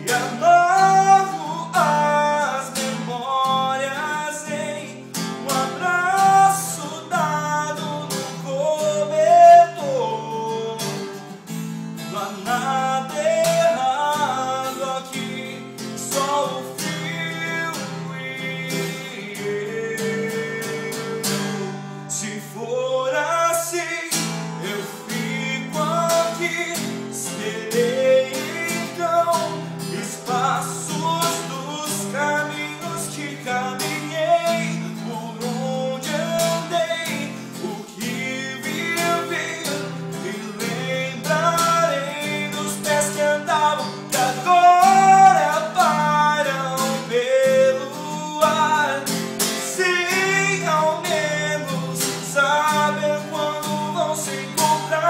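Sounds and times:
man singing: 0.0 - 55.0
strummed acoustic guitar: 0.0 - 55.0.

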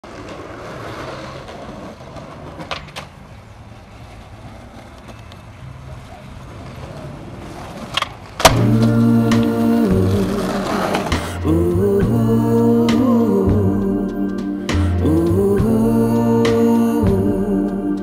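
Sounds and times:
skateboard clacks: 0.0 - 8.6
skateboard rolling on concrete: 0.0 - 11.4
music with humming voice: 8.5 - 18.0.

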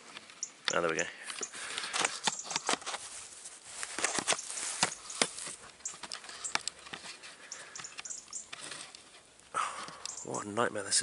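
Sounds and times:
rustling: 0.0 - 10.4
camera handling clicks and knocks: 0.1 - 3.0, 3.9 - 9.0.

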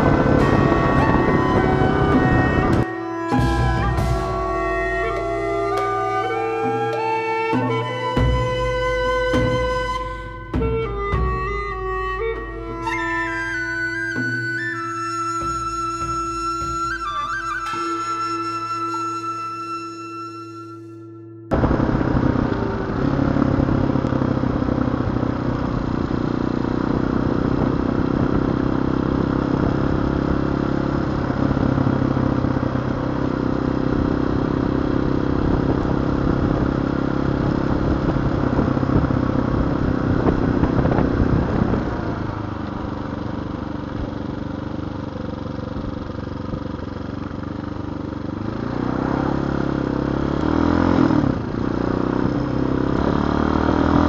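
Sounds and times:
wind noise: 0.0 - 6.8, 21.5 - 26.2, 33.8 - 43.0
motorcycle engine running: 0.0 - 18.8, 21.5 - 54.0.

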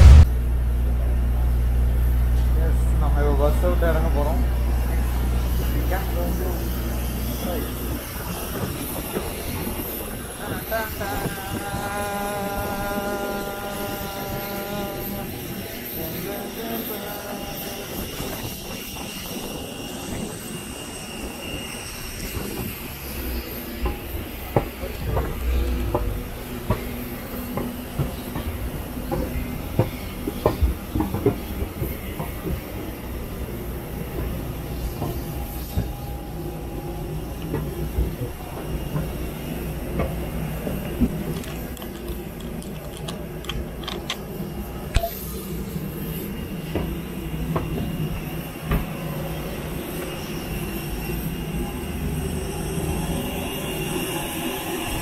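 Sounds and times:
steady low rumble: 0.0 - 8.1
faint high whine from airliner: 0.0 - 55.0.

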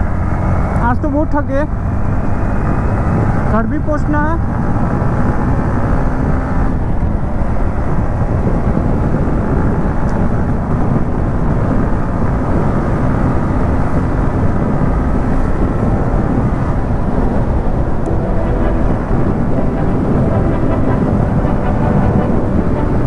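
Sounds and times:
wind rush on microphone: 0.0 - 23.0
motorcycle engine droning: 10.8 - 23.0.

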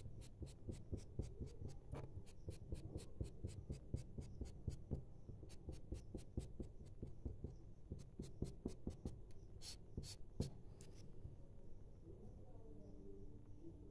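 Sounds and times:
marker ticking on paper: 0.1 - 10.2.

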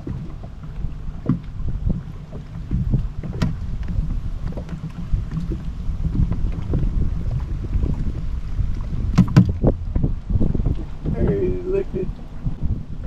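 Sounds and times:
water lapping against boat hull: 0.0 - 13.0
wind rumble on microphone: 0.0 - 13.0.

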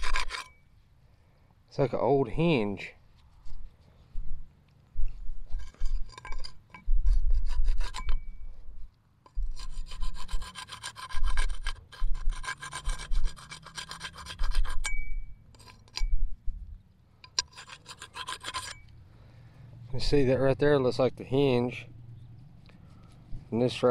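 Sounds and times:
scraping dirt off iron hinge: 0.0 - 0.6, 5.5 - 8.3, 9.2 - 16.2, 17.2 - 19.0.

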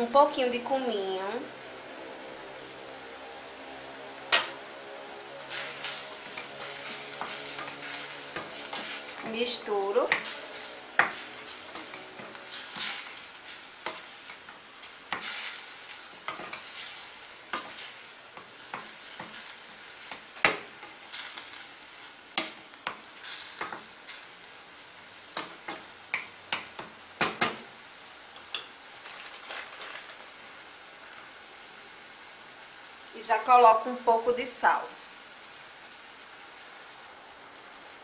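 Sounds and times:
chicken sizzling in a pan: 4.1 - 38.0
wooden spoon scraping a pan: 5.5 - 21.8, 22.4 - 24.4.

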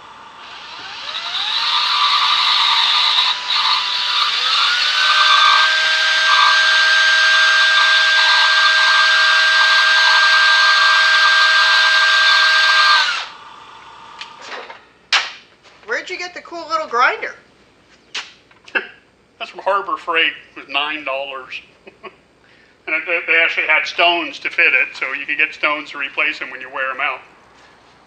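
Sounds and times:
grinding hiss: 0.0 - 14.4
bench grinder spinning: 0.2 - 14.4
cordless drill whining: 0.3 - 13.4.

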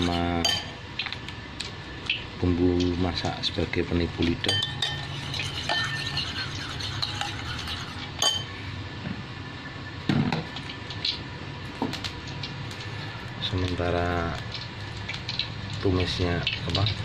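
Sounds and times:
metal spoon clinking on ceramic bowl: 0.0 - 0.8, 4.5 - 8.5.

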